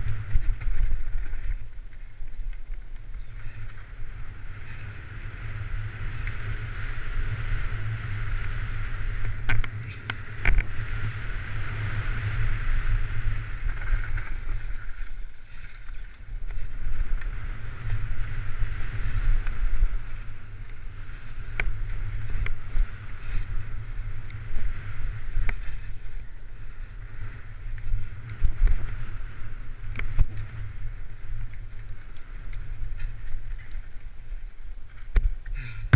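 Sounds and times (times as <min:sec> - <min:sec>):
rushing noise on dirt trail: 0:00.0 - 0:35.9.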